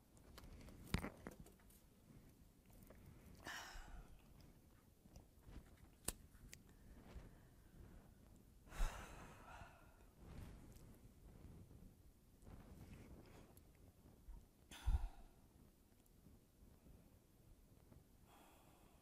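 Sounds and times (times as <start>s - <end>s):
breaths into microphone: 14.7s - 15.4s.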